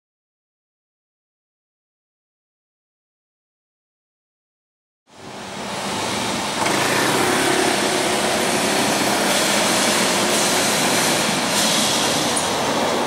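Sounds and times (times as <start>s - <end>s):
traffic on cobbles: 5.3s - 13.0s
motor scooter engine passing: 6.6s - 10.2s.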